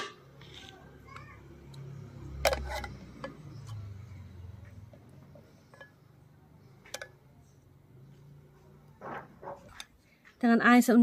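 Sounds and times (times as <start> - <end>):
metal ladle clinking on pot: 5.6 - 6.2, 6.8 - 7.2.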